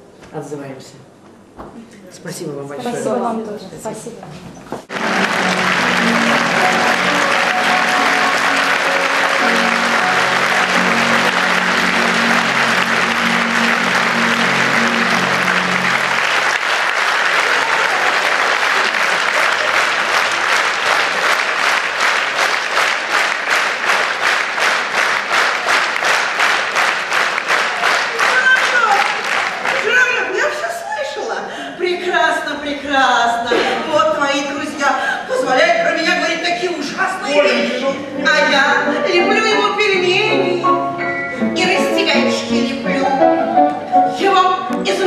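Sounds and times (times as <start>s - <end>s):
rhythmic clapping in unison: 4.8s - 30.3s
audience applauding: 4.8s - 30.7s
music: 4.9s - 16.7s, 37.2s - 45.0s.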